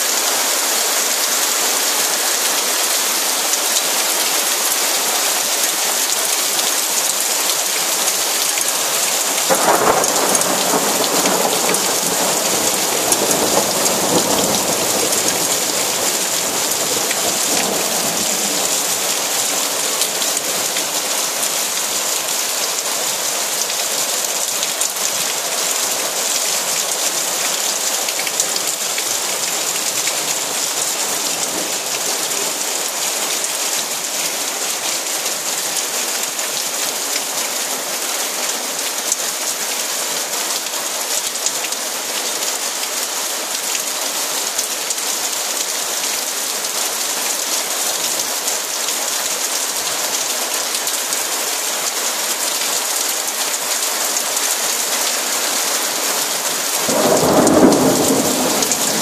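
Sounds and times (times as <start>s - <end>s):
heavy rain on paving: 0.0s - 59.0s
thunder rumbling: 9.5s - 19.1s, 56.9s - 59.0s.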